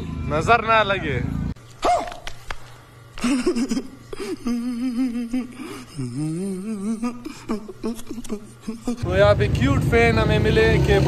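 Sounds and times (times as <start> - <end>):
man humming and whining: 3.2 - 9.1.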